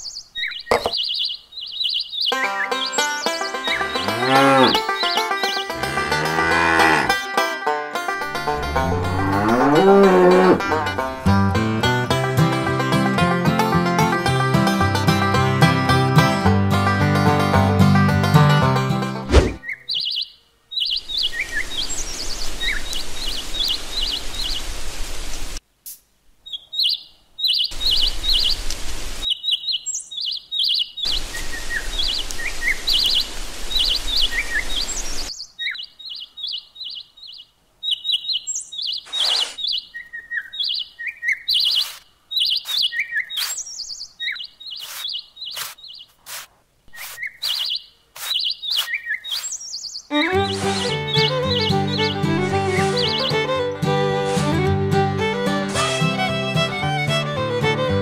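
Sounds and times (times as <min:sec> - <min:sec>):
birds chirping: 0:00.0 - 0:07.1, 0:19.3 - 0:24.8, 0:26.4 - 0:54.6
rake scratching through sand: 0:19.3 - 0:19.6, 0:39.0 - 0:39.7, 0:41.6 - 0:43.8, 0:44.7 - 0:49.7, 0:50.3 - 0:51.0
sand pouring hiss: 0:39.1 - 0:39.7, 0:42.6 - 0:43.7, 0:44.8 - 0:49.6, 0:50.4 - 0:51.0.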